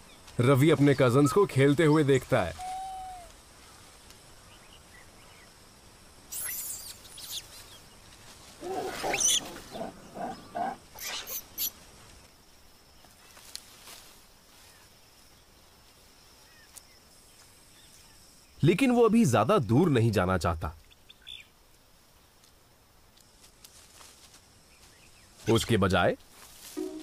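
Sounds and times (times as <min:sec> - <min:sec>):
faint forest background: 0:00.0 - 0:27.0
monkeys squealing and screeching: 0:08.6 - 0:11.7.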